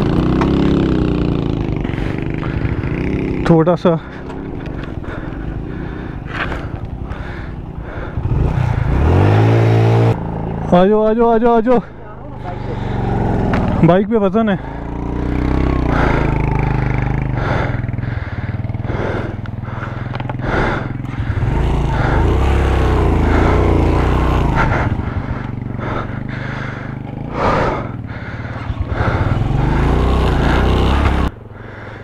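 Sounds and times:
motorcycle engine pulling hard: 0:00.0 - 0:11.6, 0:12.3 - 0:32.0.

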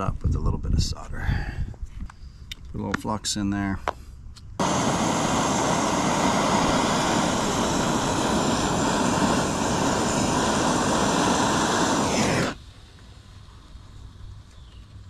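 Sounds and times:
gas torch roaring: 0:04.6 - 0:13.4.

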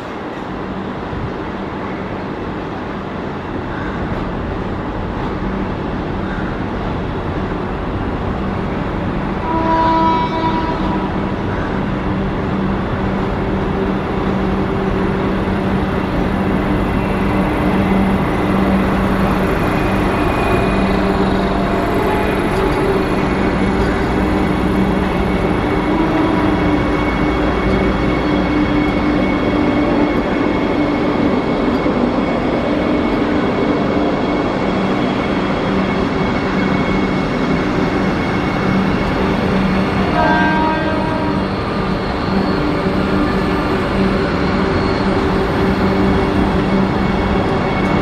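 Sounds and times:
electric train rolling: 0:00.0 - 0:48.0
train horn blast: 0:09.4 - 0:11.2, 0:24.8 - 0:27.7, 0:40.0 - 0:41.5.

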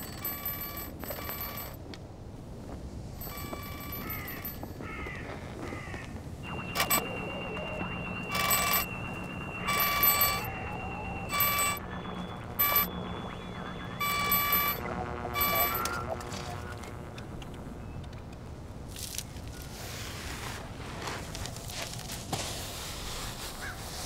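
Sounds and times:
bell-like ringing bursts: 0:00.0 - 0:01.8, 0:03.2 - 0:04.8, 0:06.4 - 0:17.0
steady high tone: 0:06.4 - 0:18.0.

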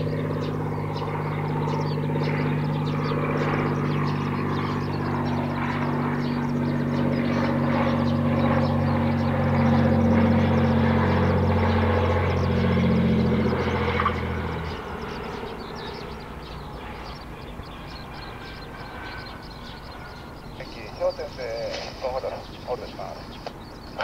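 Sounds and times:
propeller plane engine humming: 0:00.0 - 0:24.0.

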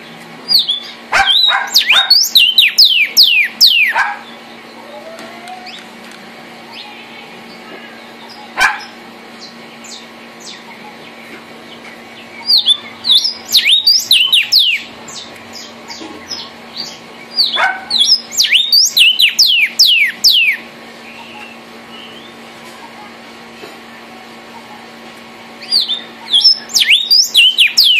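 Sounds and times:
bird singing downslurred whistles: 0:00.5 - 0:04.0, 0:12.4 - 0:14.9, 0:17.3 - 0:22.4, 0:25.6 - 0:27.9.

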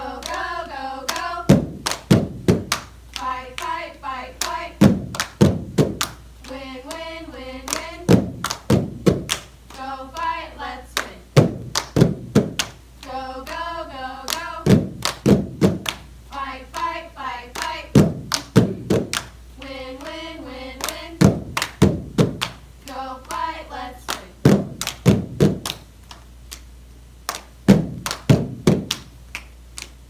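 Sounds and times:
voices singing together: 0:00.0 - 0:09.0, 0:09.7 - 0:11.6, 0:13.0 - 0:25.0
people clapping hands: 0:00.1 - 0:26.7, 0:27.3 - 0:30.0
slapping mat and legs: 0:01.5 - 0:02.8, 0:04.8 - 0:06.1, 0:08.1 - 0:09.4, 0:11.4 - 0:12.7, 0:14.7 - 0:15.9, 0:21.2 - 0:22.5, 0:24.5 - 0:25.8, 0:27.7 - 0:29.0.

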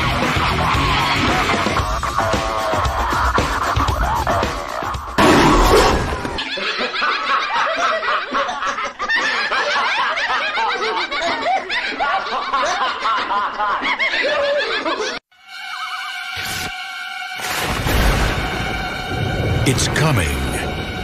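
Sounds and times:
cackling maniacal laughter: 0:00.0 - 0:05.4, 0:06.1 - 0:16.2
dark music: 0:00.0 - 0:05.6, 0:15.4 - 0:21.0
loud music hit: 0:17.4 - 0:21.0.

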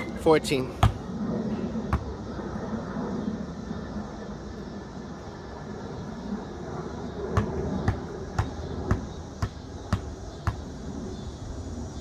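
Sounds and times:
basketball bouncing on concrete: 0:00.7 - 0:01.0, 0:01.9 - 0:02.1, 0:07.4 - 0:10.8.

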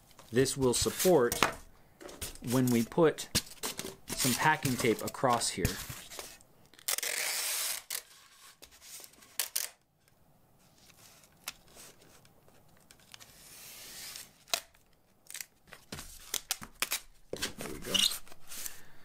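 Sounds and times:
packing tape ripping: 0:06.8 - 0:08.1, 0:09.3 - 0:09.8, 0:13.1 - 0:15.5, 0:16.2 - 0:17.5
tape peeling slowly: 0:06.8 - 0:09.8.

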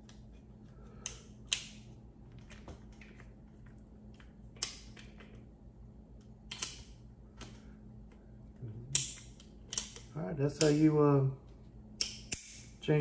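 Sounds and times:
revolver cylinder metal clicks: 0:06.5 - 0:07.5, 0:08.9 - 0:10.9.

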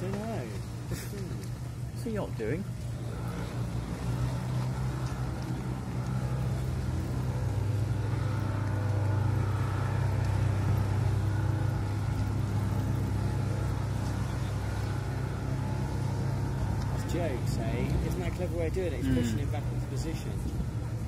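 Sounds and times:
boat engines low drone: 0:00.0 - 0:21.0.

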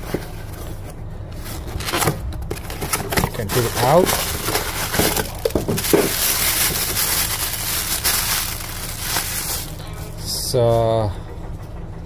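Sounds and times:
cardboard box rustling and scraping: 0:00.0 - 0:09.8
sharp packaging crinkles: 0:01.8 - 0:09.8.

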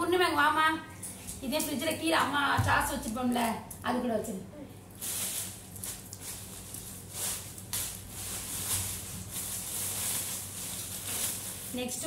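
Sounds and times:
plastic bags rustling: 0:04.9 - 0:12.0.

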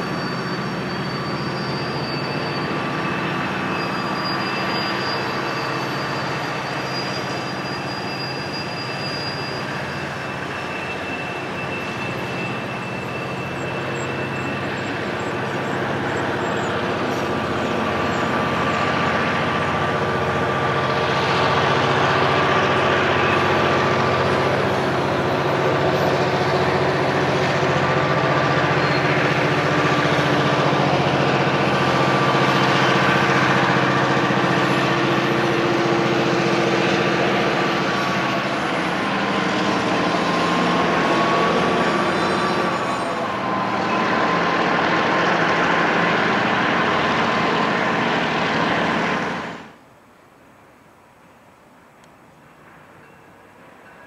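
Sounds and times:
diesel locomotive engine drone: 0:00.0 - 0:54.0
rail cars rolling on rails: 0:00.0 - 0:54.0.

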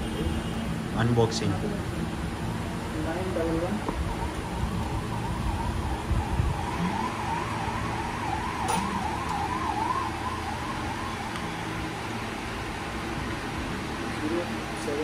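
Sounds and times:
siren wailing: 0:03.3 - 0:12.1.

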